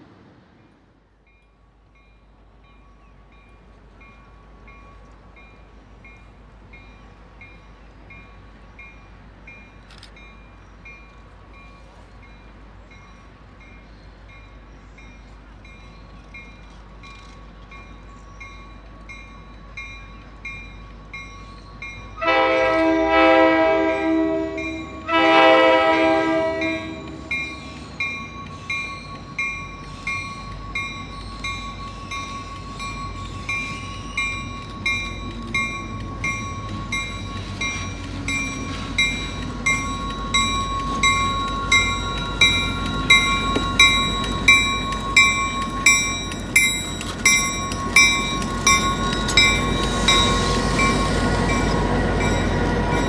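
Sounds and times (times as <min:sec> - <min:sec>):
train rumble: 0:00.0 - 0:53.0
train horn blasts: 0:22.2 - 0:27.5
bell ringing: 0:26.7 - 0:53.0.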